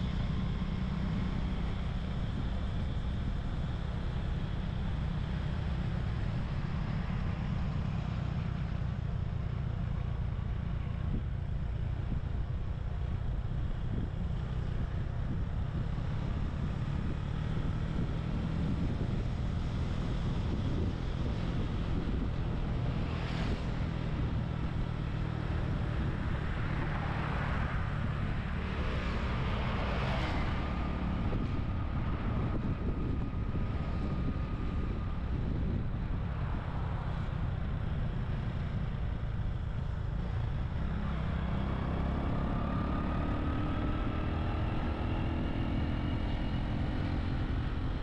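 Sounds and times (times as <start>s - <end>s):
passing traffic: 0.0s - 48.0s
road noise: 0.0s - 48.0s
wind buffeting microphone: 14.9s - 39.7s.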